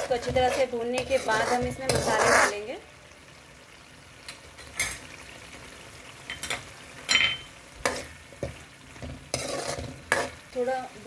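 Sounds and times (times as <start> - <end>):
spoon knocking and scraping pan: 0.0 - 2.7, 6.2 - 10.7
sauce sizzling in oil: 0.0 - 11.0.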